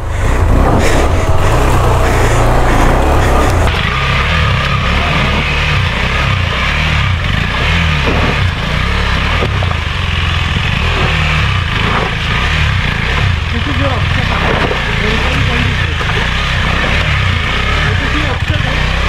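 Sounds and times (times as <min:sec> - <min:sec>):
motorcycle engine revving: 0:00.0 - 0:19.0.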